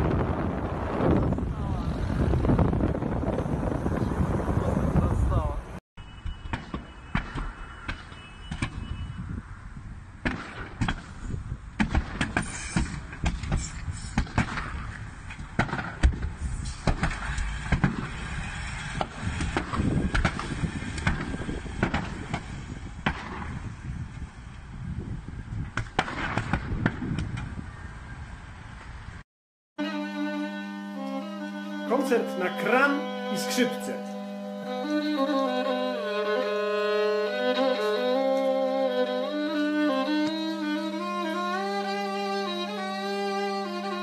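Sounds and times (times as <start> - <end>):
low fire rumble: 0.0 - 5.8, 12.9 - 29.2.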